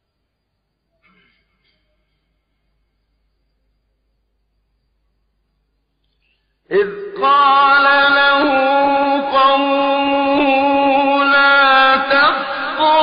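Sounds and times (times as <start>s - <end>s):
man chanting melodically: 6.7s - 13.0s.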